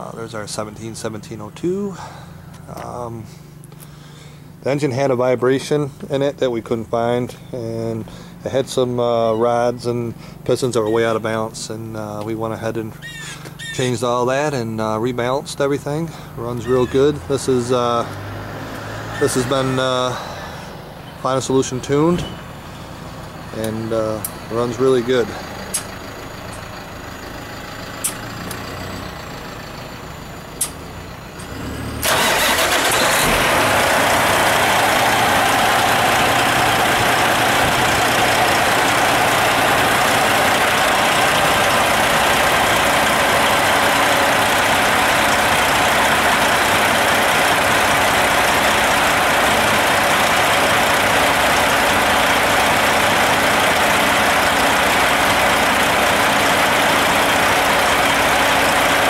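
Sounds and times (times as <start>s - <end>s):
diesel engine running: 0.0s - 59.0s
sharp clicks: 25.7s - 26.0s, 30.6s - 30.8s.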